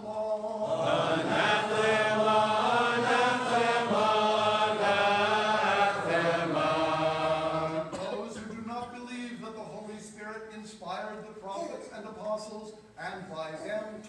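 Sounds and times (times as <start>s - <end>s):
voices chanting long held notes: 0.0s - 8.0s.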